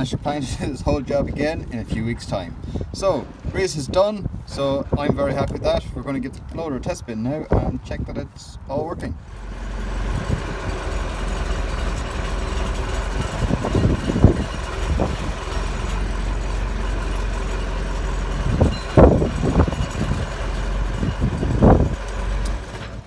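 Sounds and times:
diesel engine running: 9.2 - 23.0.

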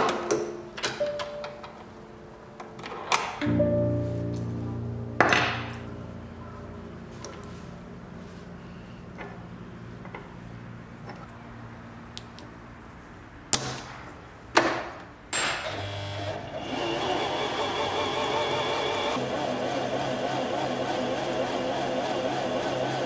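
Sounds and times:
sewing machine motor running: 15.7 - 23.0.

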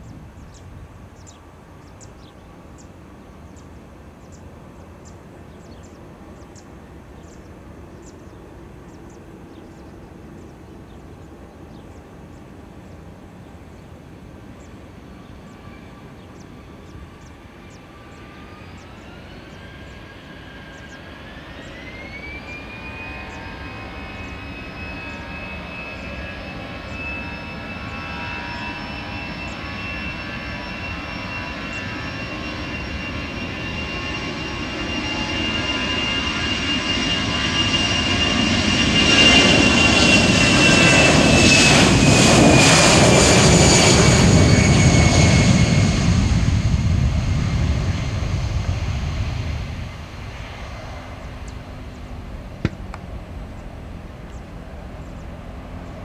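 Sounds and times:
jet engine whine: 0.0 - 56.0
jet engines spooling up: 14.9 - 56.0.

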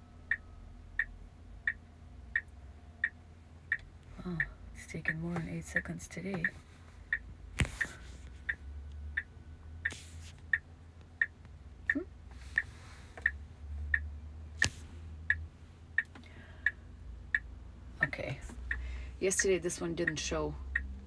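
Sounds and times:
turn signal ticking: 0.0 - 21.0
sharp click: 14.6 - 14.8.

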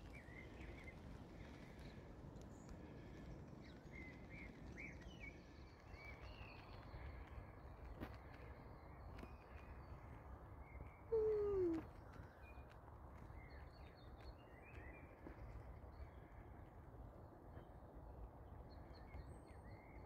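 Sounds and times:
faint bird chirps: 10.7 - 12.6.

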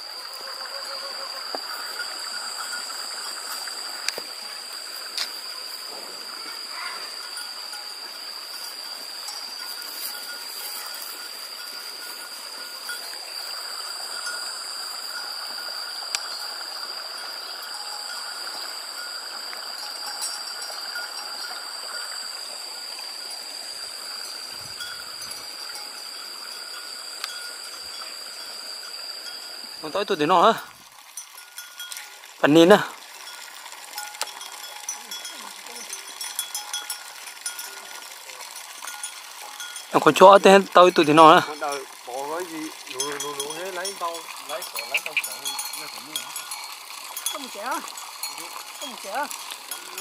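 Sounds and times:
bells clinking faintly: 1.6 - 50.0.

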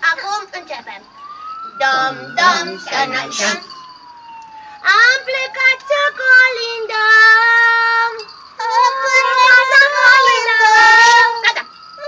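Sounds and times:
high-pitched voices singing: 1.8 - 3.7, 6.6 - 11.6.

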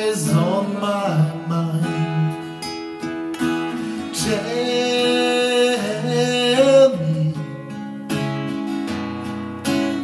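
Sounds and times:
man singing wordless line: 0.0 - 2.8, 3.8 - 8.0
acoustic guitars strumming chords: 0.0 - 10.0.

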